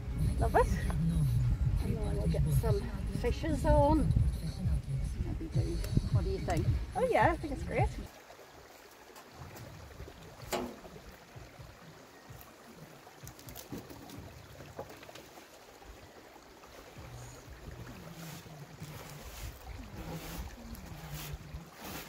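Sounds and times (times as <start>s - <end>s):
wheelbarrow rumbling over ground: 10.4s - 11.0s, 17.8s - 22.0s.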